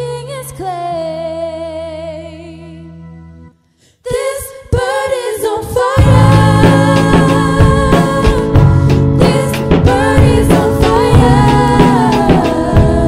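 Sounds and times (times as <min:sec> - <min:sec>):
woman singing with vibrato: 0:04.1 - 0:13.0.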